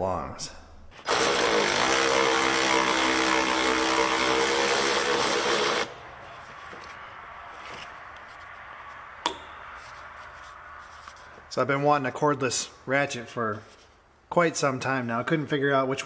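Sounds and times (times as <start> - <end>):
cordless ratchet motor whining: 1.1 - 5.9
sharp click: 9.2 - 9.6.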